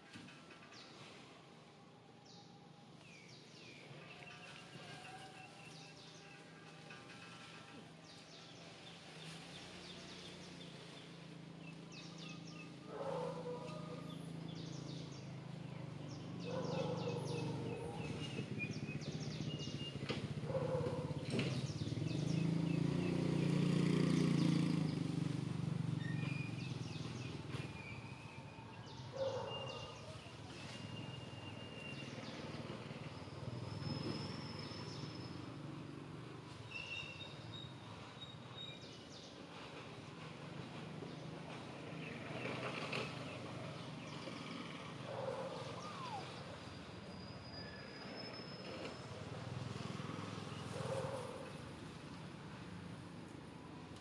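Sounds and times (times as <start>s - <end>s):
birds chirping: 2.2s - 25.1s, 26.0s - 35.4s, 42.0s - 48.6s
lower short bird calls: 45.2s - 49.0s.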